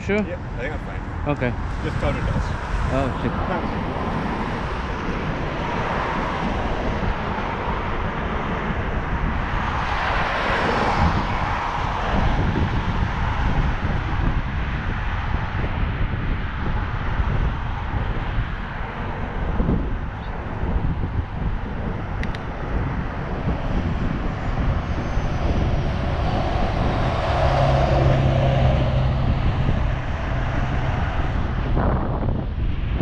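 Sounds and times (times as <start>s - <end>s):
broad rushing sound: 0.0s - 33.0s
wind rumbling on microphone: 0.0s - 33.0s.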